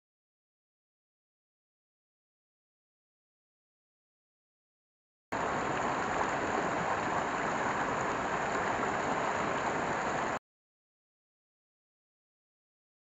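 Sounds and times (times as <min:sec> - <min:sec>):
stream water rushing over stones: 0:05.3 - 0:10.4.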